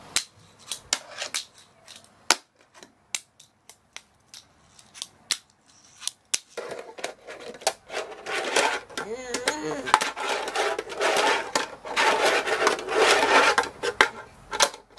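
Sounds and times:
fingerboard wheels rolling: 0.4 - 2.0, 5.7 - 14.9.

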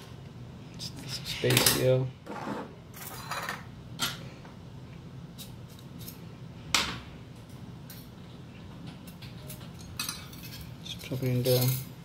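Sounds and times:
metal sieve parts clinking: 9.4 - 12.0.

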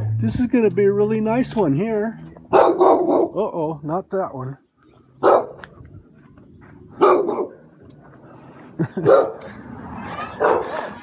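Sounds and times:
dog barking: 2.5 - 3.4, 5.2 - 5.6, 7.0 - 7.6, 9.0 - 9.5, 10.3 - 10.9.

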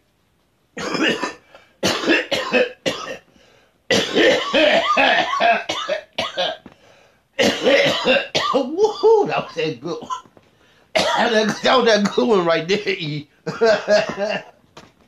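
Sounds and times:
man coughing: 0.8 - 3.2, 3.9 - 6.6, 7.4 - 10.3, 11.0 - 12.5, 13.5 - 14.6
man laughing: 13.5 - 14.5.

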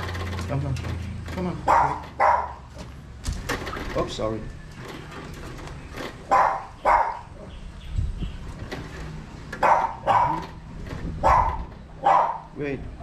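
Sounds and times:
dog barking: 1.6 - 2.7, 6.3 - 7.5, 9.6 - 10.6, 11.2 - 12.5.

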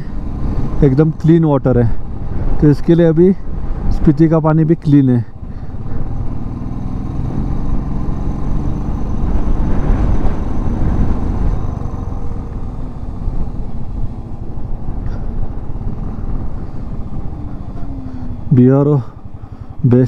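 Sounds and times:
motorcycle engine running: 5.3 - 20.0
wind rumble on microphone: 5.6 - 18.5.

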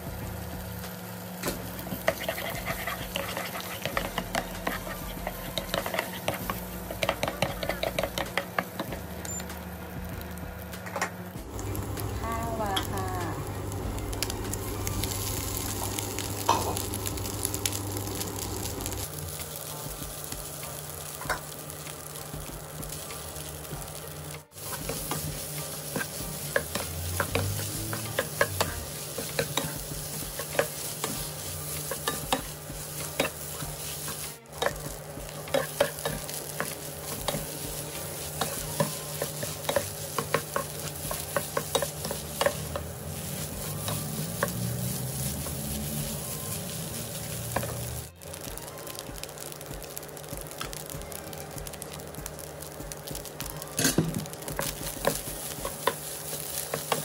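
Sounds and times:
rice and egg sizzling in wok: 0.0 - 57.0
wooden spatula scraping: 2.0 - 8.1, 24.5 - 48.1.

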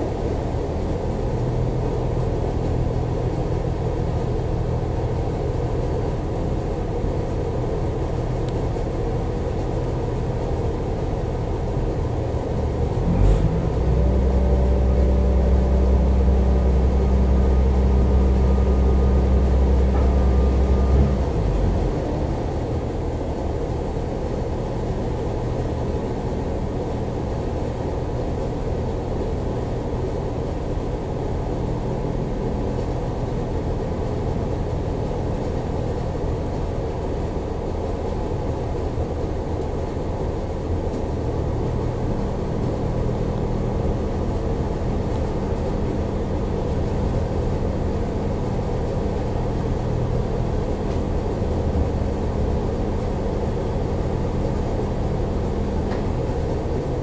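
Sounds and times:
train drone from inside carriage: 0.0 - 57.0
humming tone: 12.7 - 23.2.

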